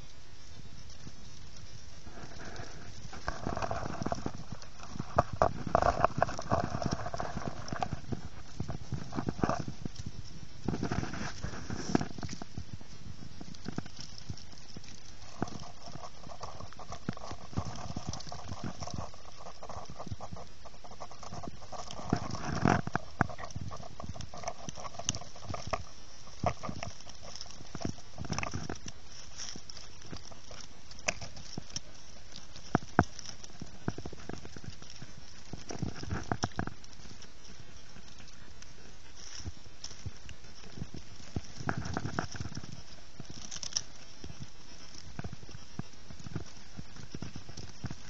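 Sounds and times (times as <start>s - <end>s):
background hiss: 0.0s - 48.0s
rustling in dry leaves: 0.0s - 48.0s.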